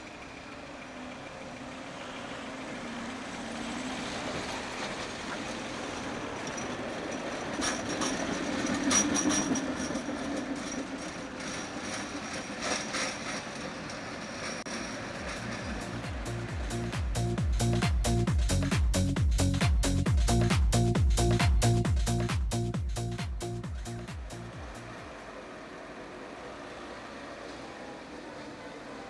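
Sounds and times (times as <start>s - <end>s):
high wheel squeal: 0.0s - 17.0s
tram motor hum: 0.0s - 29.0s
wheel clicks on rails: 4.8s - 17.2s.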